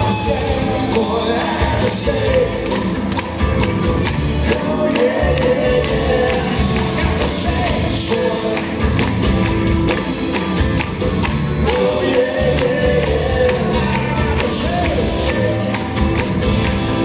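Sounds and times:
people singing: 0.0s - 3.2s, 4.2s - 9.1s, 11.5s - 16.5s
live rock band playing: 0.0s - 17.0s.

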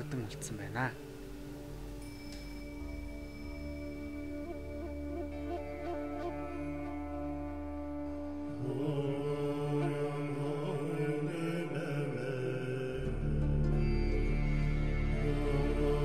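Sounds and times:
background music with drone: 0.0s - 16.0s.

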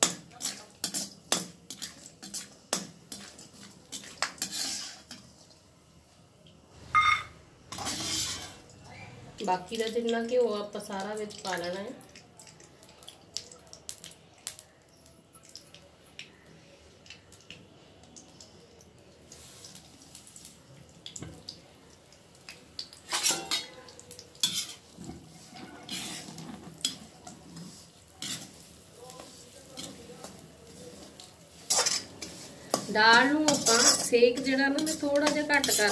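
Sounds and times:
light sizzle in hot fat: 0.0s - 35.9s
metal spatula scraping iron pan: 4.0s - 5.2s, 7.7s - 8.6s, 23.1s - 23.7s, 24.4s - 28.6s, 31.6s - 35.9s.

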